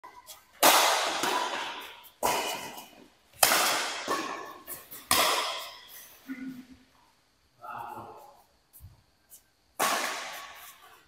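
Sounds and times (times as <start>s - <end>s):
badminton racket hitting shuttlecock: 0.2s - 5.9s, 9.8s - 11.0s.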